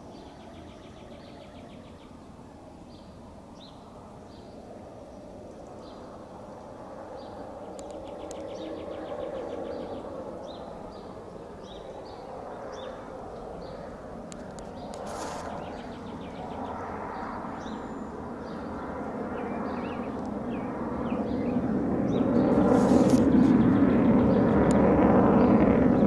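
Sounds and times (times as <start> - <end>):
fighter jet roaring overhead: 0.0 - 26.0
small birds chirping: 7.1 - 24.8.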